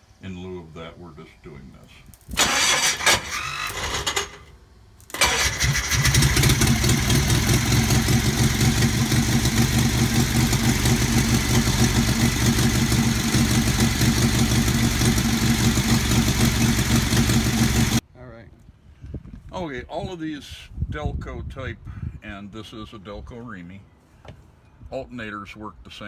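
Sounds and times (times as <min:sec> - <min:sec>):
engine starter cranking: 0:02.3 - 0:04.5, 0:05.1 - 0:09.0
engine running steadily: 0:05.2 - 0:18.0.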